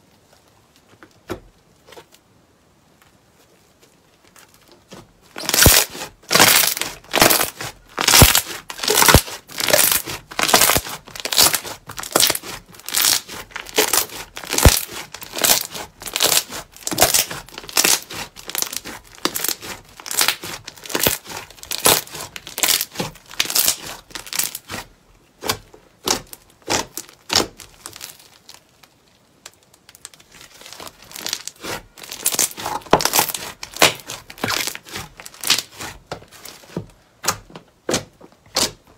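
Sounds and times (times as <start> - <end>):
slime crackling and tearing: 3.8 - 36.7.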